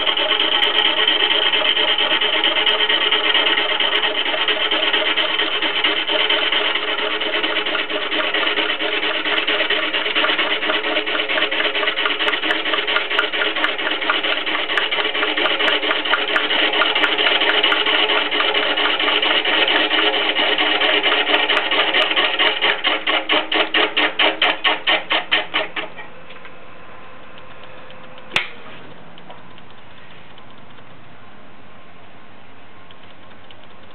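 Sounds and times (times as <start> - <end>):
gouge shaving spinning log: 0.0 - 26.0
wood lathe hum: 0.0 - 26.1
sharp click: 27.4 - 28.6, 29.2 - 31.2, 32.9 - 33.9.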